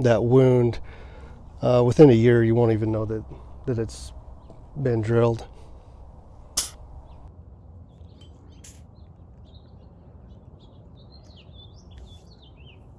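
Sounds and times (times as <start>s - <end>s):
low background rumble: 0.0s - 8.2s
small birds chirping: 0.0s - 12.9s
sharp click: 6.6s - 6.9s.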